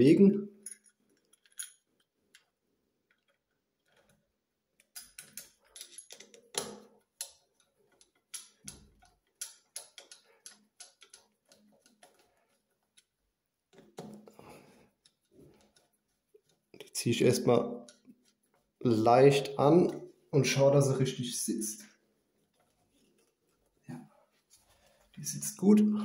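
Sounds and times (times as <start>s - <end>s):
small clicks and taps on metal: 4.8s - 16.9s, 17.8s - 18.6s.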